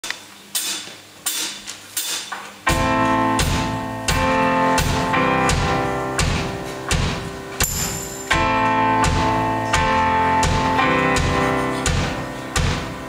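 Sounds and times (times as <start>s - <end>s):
live band playing chords: 2.7s - 13.0s.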